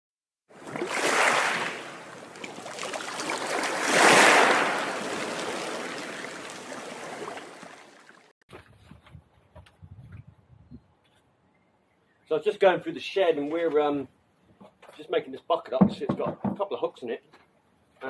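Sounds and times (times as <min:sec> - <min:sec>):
rushing surging water: 0:00.6 - 0:08.3.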